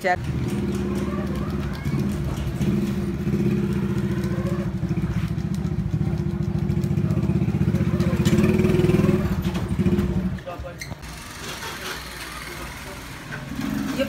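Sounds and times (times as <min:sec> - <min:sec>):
motorcycle engine idling: 0:00.2 - 0:14.0.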